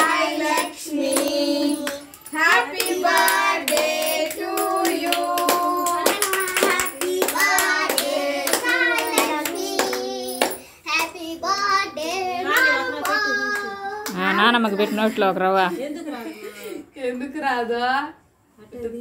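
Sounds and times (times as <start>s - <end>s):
group of people singing: 0.0s - 15.1s
hands clapping in time: 4.6s - 10.6s.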